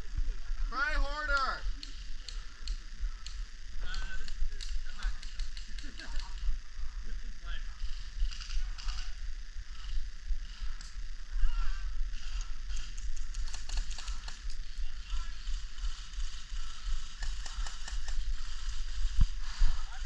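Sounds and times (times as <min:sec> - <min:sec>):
sharp clicks: 0:01.3 - 0:06.5, 0:08.2 - 0:09.2, 0:12.2 - 0:14.8, 0:16.8 - 0:18.8.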